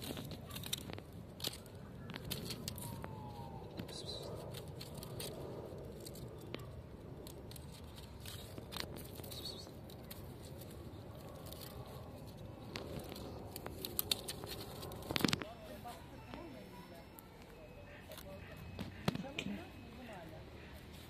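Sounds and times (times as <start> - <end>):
kitten claws scratching bark: 0.0 - 15.4
outdoor background: 0.0 - 21.0.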